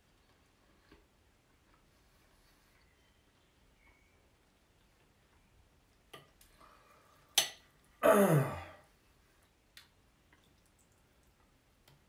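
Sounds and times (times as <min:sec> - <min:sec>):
cutlery clicking on a plate: 0:07.4 - 0:07.6.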